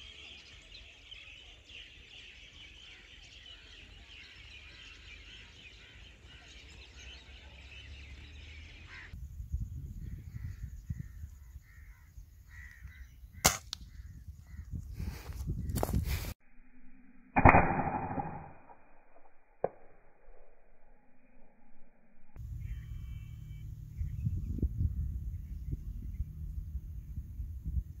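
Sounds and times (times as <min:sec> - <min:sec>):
birds chirping: 0:00.0 - 0:16.0, 0:22.4 - 0:28.0
wind rumble: 0:08.9 - 0:16.4, 0:22.4 - 0:28.0
air rifle shot: 0:13.4 - 0:13.8, 0:17.4 - 0:18.8.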